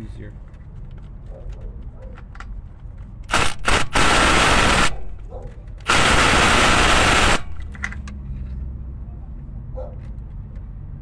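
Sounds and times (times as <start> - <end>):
cordless impact wrench hammering: 3.3 - 5.0, 5.9 - 7.8.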